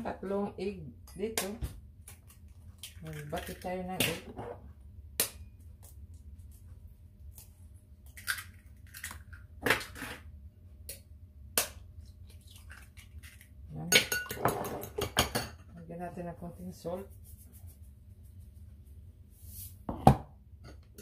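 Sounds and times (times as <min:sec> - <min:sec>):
eggs cracking on glass bowl: 0:01.4 - 0:04.1, 0:08.0 - 0:10.0.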